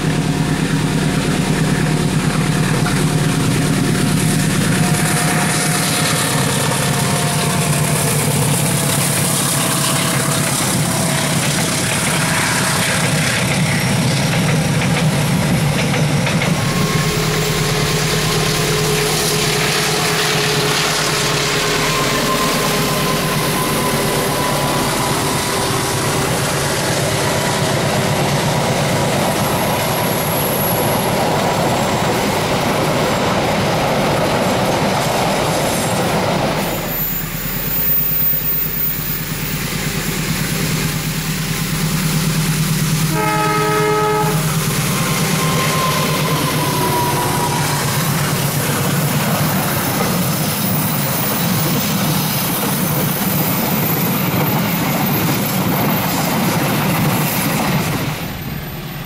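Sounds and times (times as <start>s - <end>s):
train wheels clattering over rail joints: 0.0s - 18.2s, 44.5s - 58.5s
diesel locomotive hum: 0.0s - 59.0s
wheel squeal: 16.6s - 27.2s, 28.1s - 33.3s, 34.9s - 41.0s, 43.3s - 59.0s.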